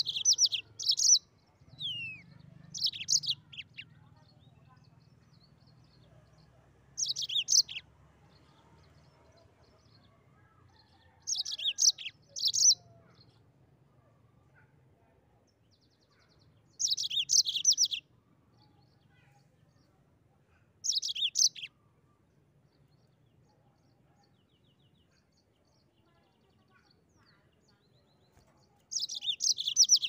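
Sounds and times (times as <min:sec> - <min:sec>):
canary singing: 0:00.0 - 0:03.9, 0:07.0 - 0:07.8, 0:11.3 - 0:12.9, 0:16.8 - 0:18.0, 0:20.8 - 0:21.7, 0:28.2 - 0:30.0.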